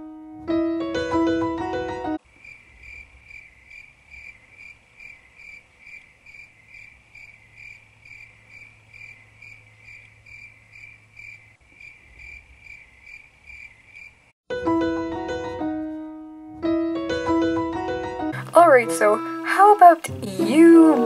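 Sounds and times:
cricket chirping: 0:02.2 - 0:14.3.

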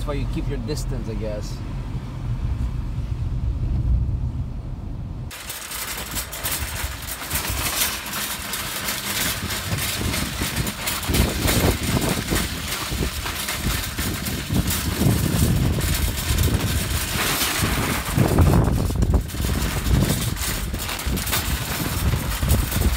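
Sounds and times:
cart wheels rattling over snow: 0:05.3 - 0:22.9.

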